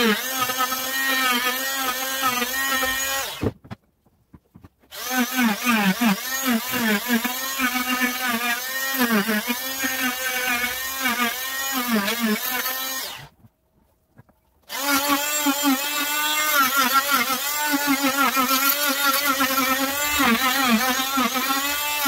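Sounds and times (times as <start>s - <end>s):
oscillating multi-tool cutting wood: 0.0s - 3.6s, 4.4s - 13.4s, 14.7s - 22.0s.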